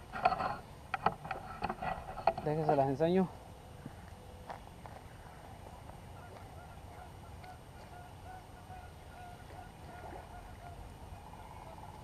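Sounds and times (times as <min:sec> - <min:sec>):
low steady rumble: 0:00.0 - 0:12.0
geese honking: 0:06.0 - 0:12.0.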